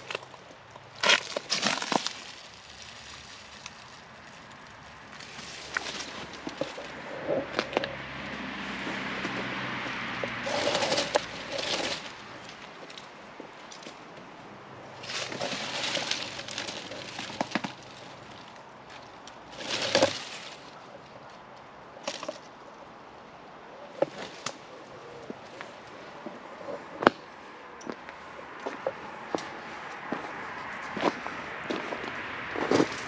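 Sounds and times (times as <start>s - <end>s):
footsteps on gravel: 27.9s - 33.0s.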